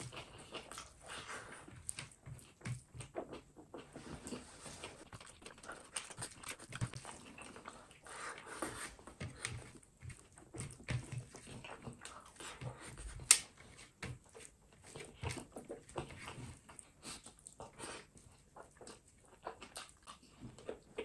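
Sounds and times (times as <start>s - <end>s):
lip smacking: 0.0s - 13.4s
wet chewing: 0.0s - 21.0s.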